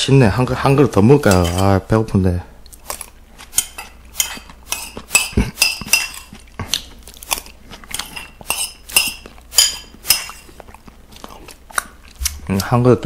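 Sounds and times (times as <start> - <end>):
spoon clinking against bowl: 0.7 - 1.8, 3.6 - 6.3, 7.9 - 10.4.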